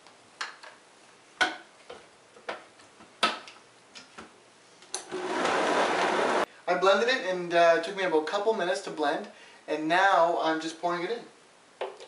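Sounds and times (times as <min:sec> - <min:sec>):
blender motor running: 0:05.1 - 0:06.5.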